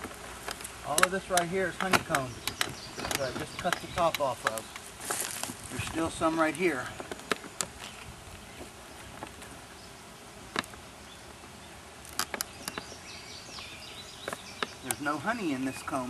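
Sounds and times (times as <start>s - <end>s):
honey bees buzzing: 0.0s - 16.0s
sharp clicks: 0.4s - 4.9s, 12.1s - 13.0s, 13.6s - 15.8s.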